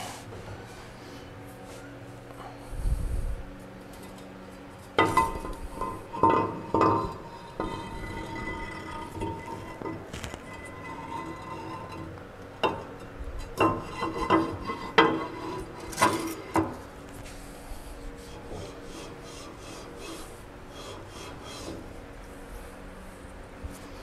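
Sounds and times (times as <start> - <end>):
sharp metal knocks and scrapes: 4.8 - 16.8
metal rubbing on engine block: 4.8 - 23.2.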